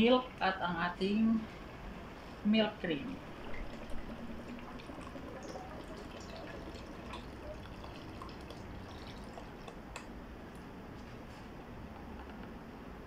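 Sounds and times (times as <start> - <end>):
liquid trickling into a pot: 3.1 - 10.1.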